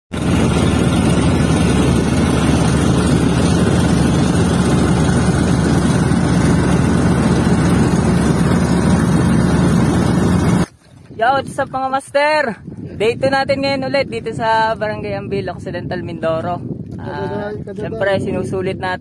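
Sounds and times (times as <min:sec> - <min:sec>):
boat engine droning: 0:00.1 - 0:10.8.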